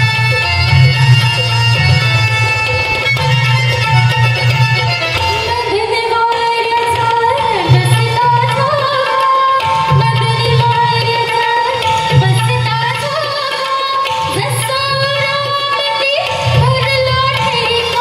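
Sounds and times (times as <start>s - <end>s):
sung melody with sliding notes: 0.0s - 18.0s.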